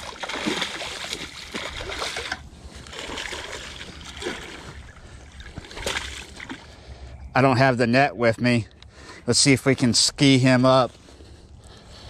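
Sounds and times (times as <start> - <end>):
fish thrashing and splashing: 0.0 - 6.8.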